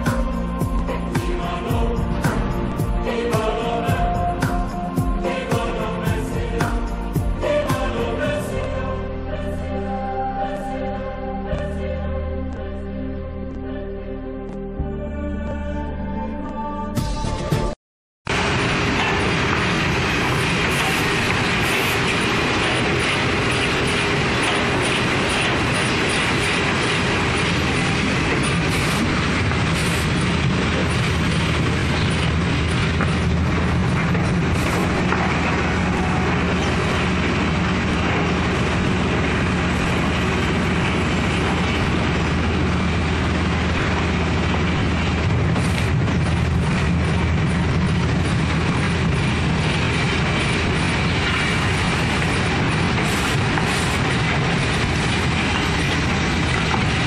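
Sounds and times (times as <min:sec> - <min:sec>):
conveyor rattle: 0:18.3 - 0:57.0.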